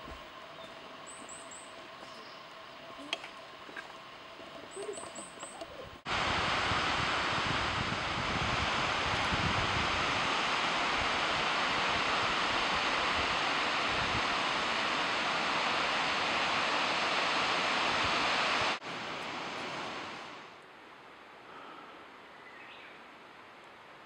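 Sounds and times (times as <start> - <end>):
waterfall rushing: 5.8 - 20.6.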